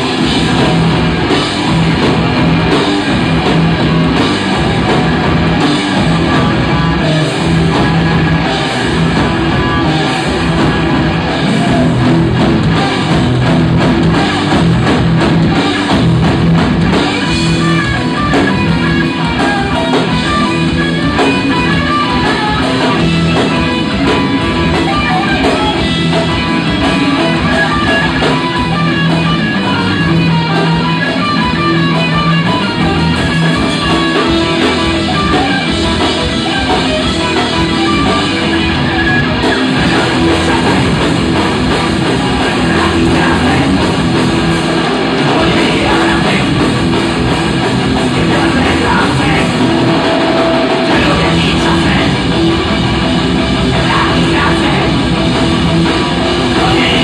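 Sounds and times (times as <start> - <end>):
bass guitar: 0.0 - 57.0
drum kit: 0.0 - 57.0
electric guitars: 0.0 - 57.0
man singing: 39.7 - 41.6, 42.2 - 43.9, 45.2 - 46.9, 48.0 - 50.2, 50.8 - 52.5, 53.7 - 55.2, 56.5 - 57.0.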